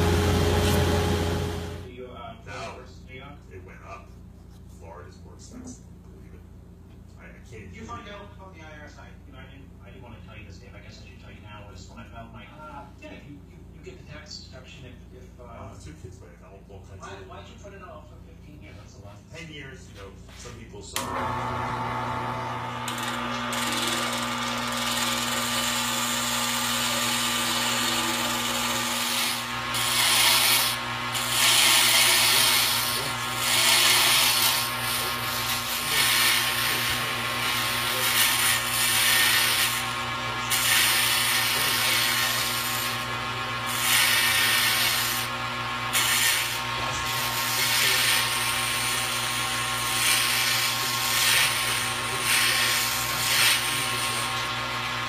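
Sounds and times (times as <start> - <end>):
power tool cutting wood: 0.0 - 1.9, 21.0 - 55.0
power tool motor hum: 0.0 - 1.9, 21.0 - 55.0.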